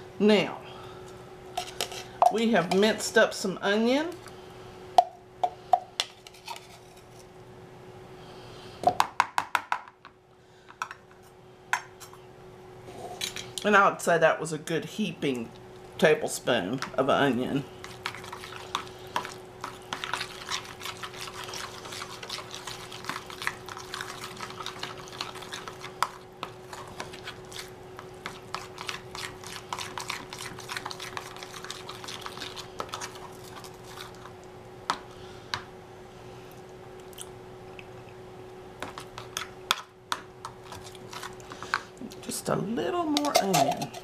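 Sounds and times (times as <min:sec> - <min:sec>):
faint steady hum: 0:00.0 - 0:44.0
wet squishing of stirred sauce: 0:17.7 - 0:35.0, 0:40.2 - 0:42.3.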